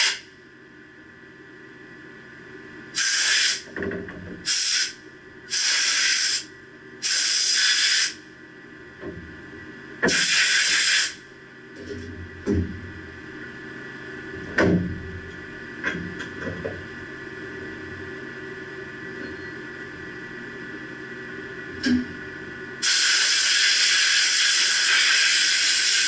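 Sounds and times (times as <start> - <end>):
compressed air hissing bursts: 3.0 - 3.7, 4.4 - 8.2, 10.1 - 11.2, 22.8 - 26.0.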